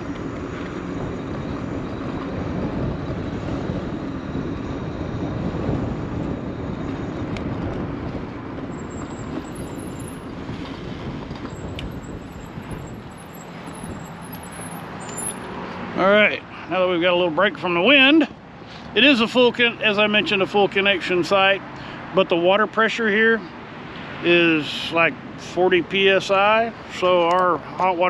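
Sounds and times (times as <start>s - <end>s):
wind buffeting microphone: 0.0s - 15.2s.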